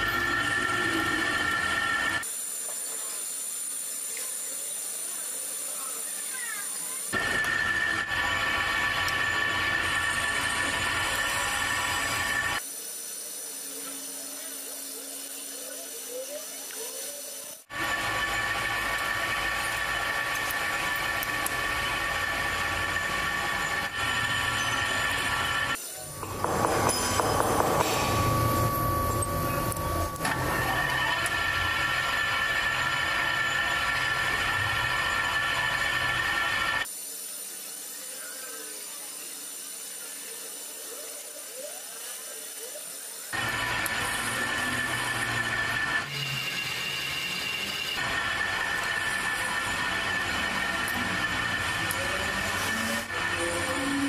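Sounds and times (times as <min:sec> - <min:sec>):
metal lathe whine: 0:00.0 - 0:54.0
thin high whir: 0:00.0 - 0:54.0
machine hum: 0:17.7 - 0:36.9.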